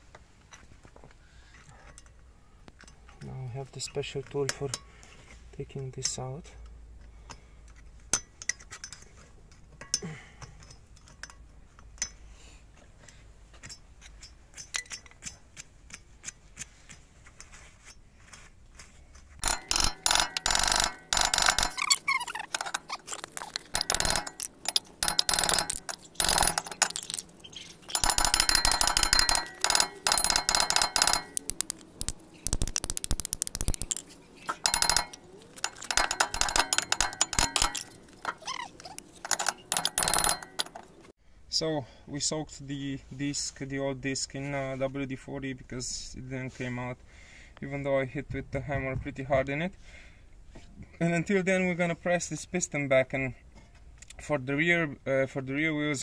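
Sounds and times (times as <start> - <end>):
hammer striking ringing steel disc: 19.4 - 22.9, 23.6 - 27.2, 27.9 - 32.5, 33.6 - 38.4, 39.2 - 40.9
hook tool clicking on metal: 19.4 - 41.0.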